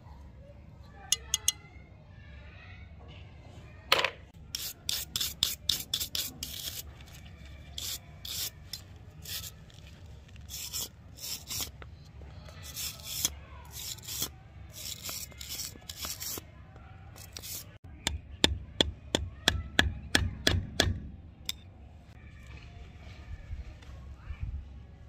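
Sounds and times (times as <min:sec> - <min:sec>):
hand tool scraping rusty metal: 0:04.5 - 0:11.8, 0:12.6 - 0:16.4, 0:17.2 - 0:17.8.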